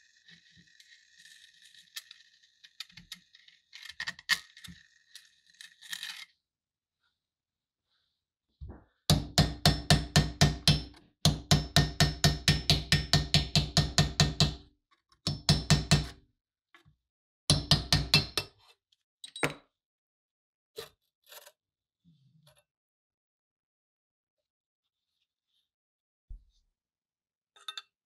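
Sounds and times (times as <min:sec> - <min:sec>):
hammer tapping on metal: 0:09.1 - 0:14.6.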